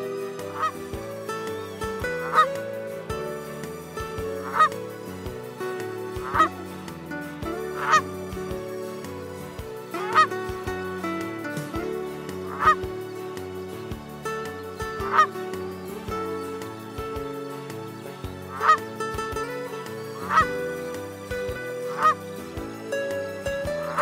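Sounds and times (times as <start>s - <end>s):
background music: 0.0s - 24.0s
goose honking: 0.1s - 1.0s, 2.2s - 2.6s, 4.3s - 4.8s, 6.1s - 6.6s, 7.5s - 8.2s, 10.0s - 10.4s, 12.4s - 12.8s, 15.0s - 15.4s, 18.5s - 18.9s, 20.2s - 20.7s, 21.5s - 22.3s.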